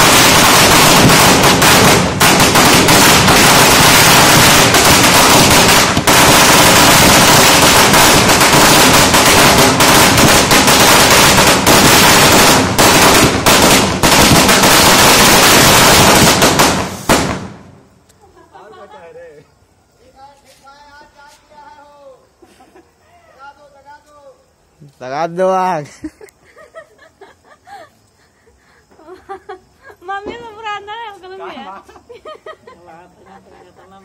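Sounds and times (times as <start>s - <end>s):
firecrackers crackling: 0.0s - 18.3s.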